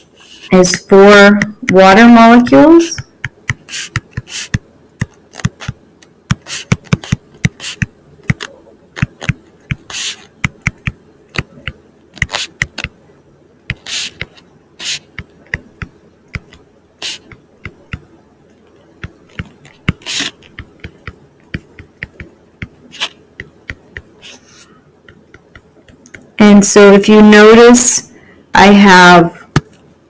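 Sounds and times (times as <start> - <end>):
stylus tapping on screen: 1.3 - 13.0, 13.7 - 18.1, 19.0 - 24.3, 25.0 - 26.3
stylus scratchy strokes: 1.8 - 12.9, 13.7 - 15.8, 16.4 - 18.0, 19.1 - 22.3, 22.9 - 24.7.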